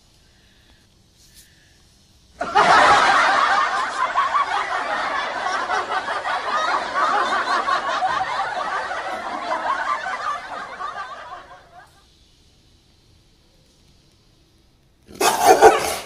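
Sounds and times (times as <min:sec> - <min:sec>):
people laughing: 0:02.4 - 0:12.0.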